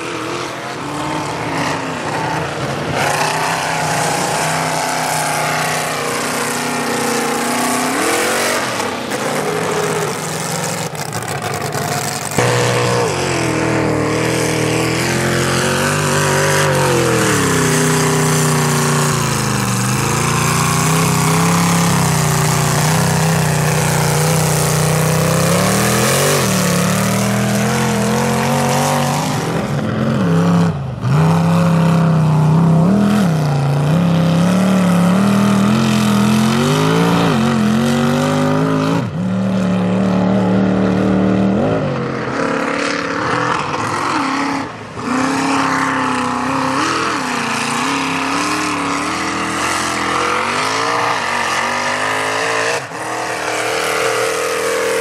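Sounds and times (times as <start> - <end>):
tires churning mud: 0.0 - 55.0
truck engine revving: 0.0 - 55.0.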